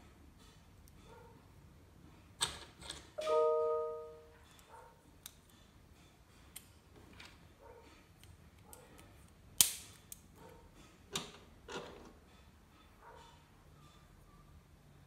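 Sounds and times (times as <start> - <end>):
bell-like ding: 3.2 - 4.3.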